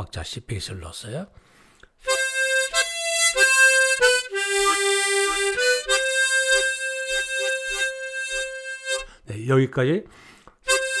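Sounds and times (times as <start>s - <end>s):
harmonica melody: 2.0s - 9.3s, 10.6s - 11.0s.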